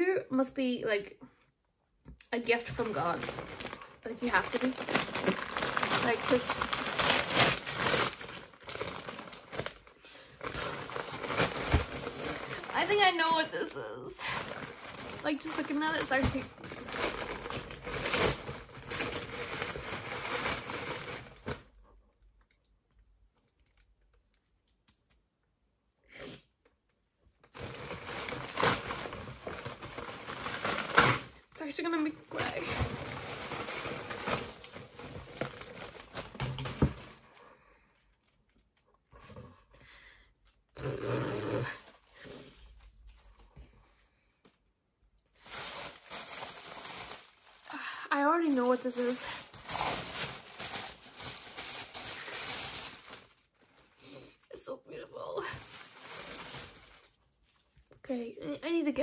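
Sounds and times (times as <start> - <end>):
paper crumpling and tearing: 2.6 - 21.7, 27.5 - 37.4, 45.4 - 54.1, 55.4 - 57.6.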